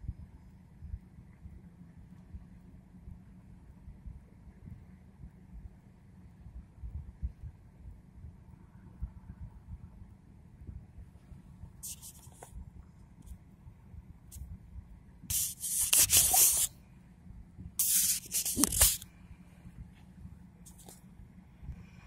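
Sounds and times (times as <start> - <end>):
loud hissing rushes: 15.3 - 16.7, 17.8 - 19.0.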